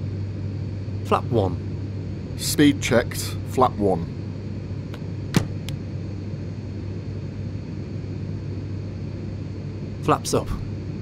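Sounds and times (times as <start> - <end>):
hum of engine and airflow: 0.0 - 11.0.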